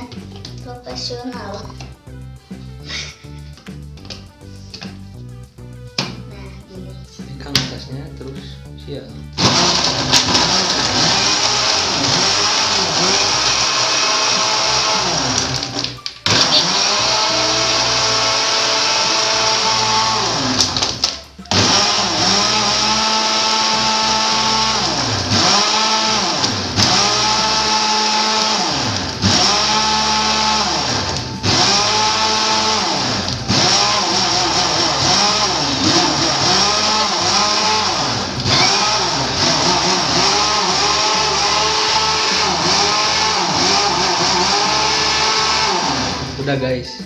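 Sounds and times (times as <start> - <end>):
blender motor whining: 9.2 - 46.5.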